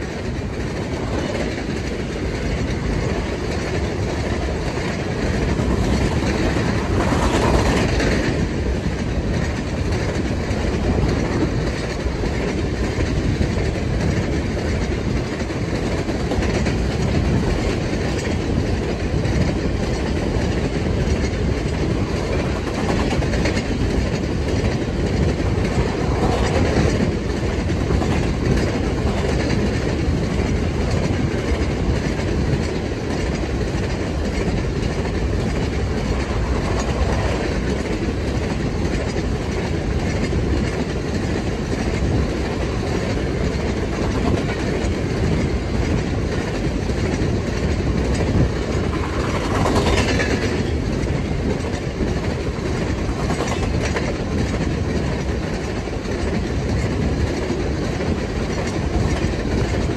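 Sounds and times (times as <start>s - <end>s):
freight train wheels rumbling on rail: 0.0s - 59.9s.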